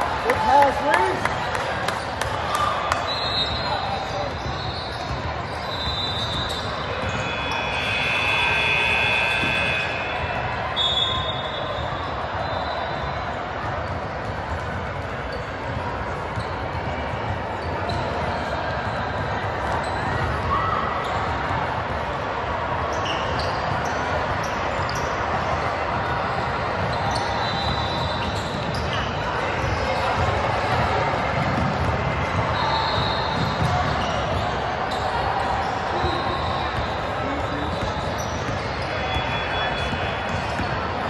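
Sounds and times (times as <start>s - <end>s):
background hubbub: 0.0s - 41.0s
sneakers squeaking on hardwood: 3.0s - 10.1s, 16.3s - 21.4s, 26.8s - 41.0s
basketball bouncing: 4.0s - 7.6s, 13.6s - 20.5s, 27.6s - 34.6s, 36.7s - 41.0s.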